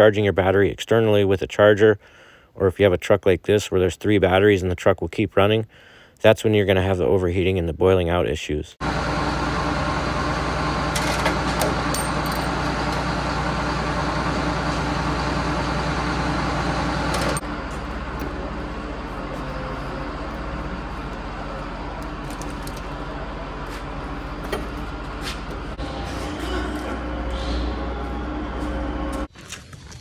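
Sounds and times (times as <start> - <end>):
mechanical drone with low hum: 8.8 - 29.3.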